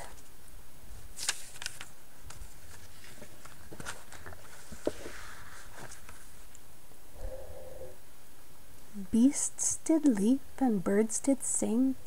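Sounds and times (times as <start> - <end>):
paper sliding and rustling: 1.1 - 6.4
book page turning: 1.1 - 6.5.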